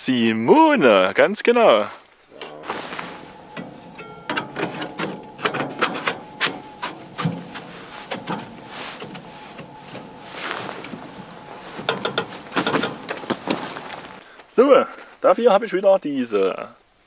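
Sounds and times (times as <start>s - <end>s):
rubbing: 2.0s - 14.3s
metal stovepipe clicking and scraping: 2.4s - 14.2s.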